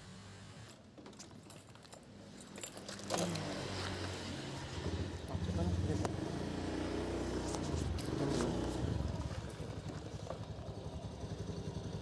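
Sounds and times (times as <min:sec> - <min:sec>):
motorcycle engine rumbling: 0:02.5 - 0:12.0.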